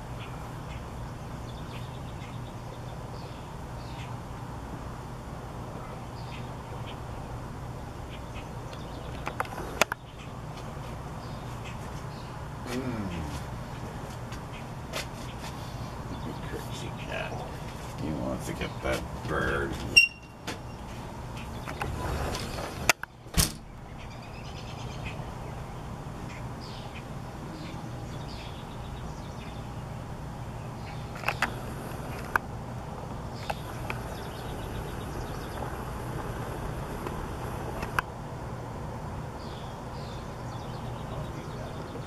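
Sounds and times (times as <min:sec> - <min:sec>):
low rumble of road traffic: 0:00.0 - 0:42.0
faint bird chirps: 0:20.0 - 0:21.9.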